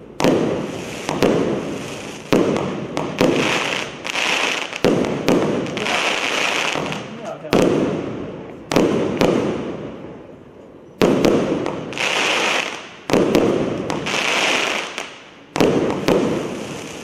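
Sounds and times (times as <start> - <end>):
fireworks hissing: 0.0 - 7.8, 11.3 - 17.0.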